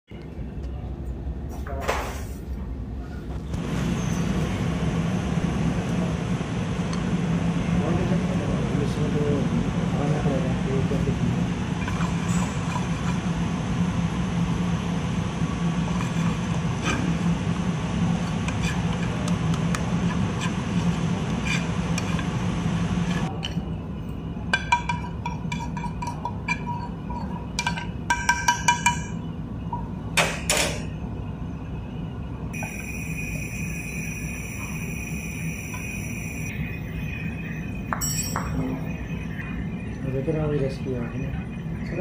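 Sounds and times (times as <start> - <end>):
gas burner rushing: 3.4 - 23.4, 32.5 - 42.0
spoon scraping in a pan: 18.3 - 19.2, 21.3 - 22.4, 25.0 - 27.8
ringing metal clinks: 37.9 - 38.6.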